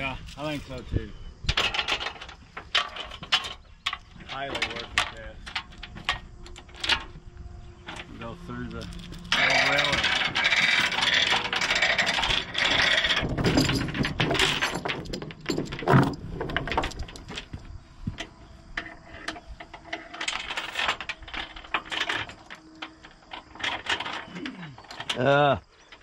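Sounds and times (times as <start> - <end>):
steel chains clinking: 7.8 - 17.6, 18.2 - 26.0.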